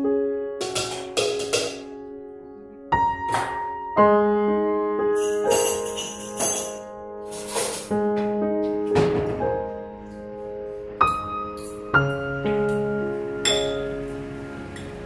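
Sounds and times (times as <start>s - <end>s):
piano notes: 0.0s - 15.0s
light jingling percussion: 5.2s - 7.9s.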